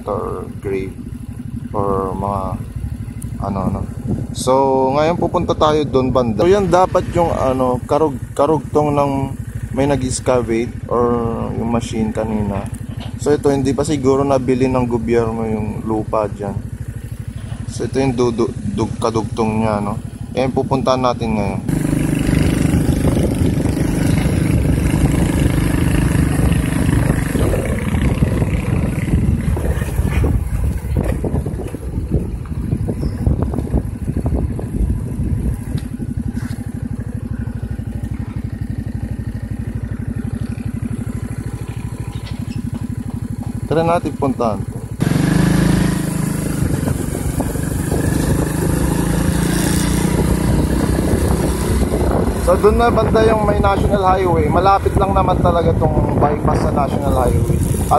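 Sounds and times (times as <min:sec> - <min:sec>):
wind rumbling on microphone: 0:00.0 - 0:08.4, 0:21.5 - 0:43.7, 0:44.6 - 0:57.9
motorcycle engine running: 0:00.0 - 0:57.9.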